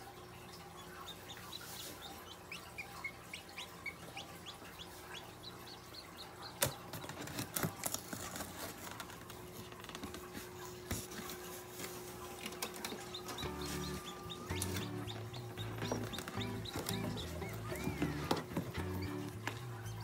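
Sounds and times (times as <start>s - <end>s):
chick peeping: 0.1s - 7.6s, 11.5s - 20.0s
clicks and rustles: 6.6s - 13.4s.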